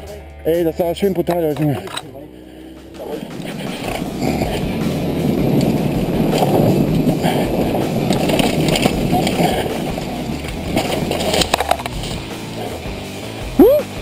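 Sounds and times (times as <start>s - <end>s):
bike knocks and rattles: 1.4s - 2.1s, 3.1s - 12.9s
wind rushing: 2.4s - 11.4s
bike tyre noise on dirt: 2.8s - 14.0s.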